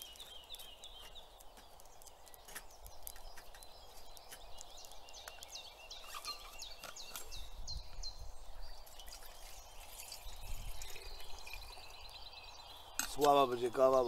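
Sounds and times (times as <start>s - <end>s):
songbird whistling: 3.9s - 13.1s.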